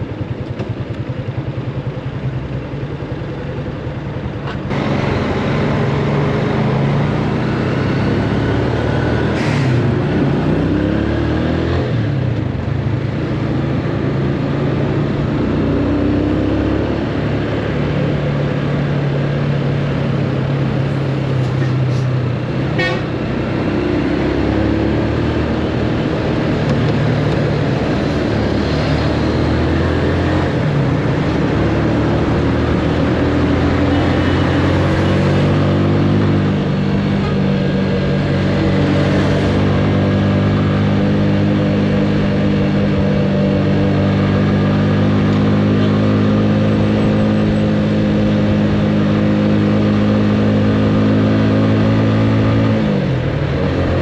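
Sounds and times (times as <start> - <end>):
motorcycle engine: 0.0 - 54.0
wind and road noise: 0.0 - 54.0.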